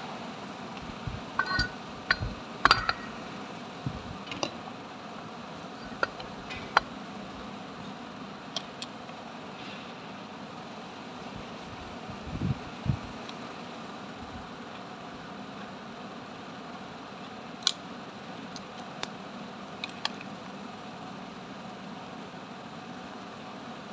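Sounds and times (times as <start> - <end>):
steady background hum: 0.0 - 23.9
metal tools clinking on casing: 1.4 - 3.2, 5.7 - 6.9.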